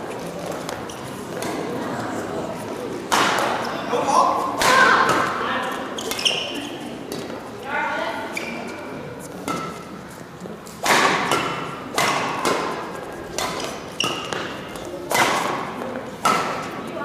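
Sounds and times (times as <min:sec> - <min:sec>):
badminton racket hits: 0:10.7 - 0:16.8.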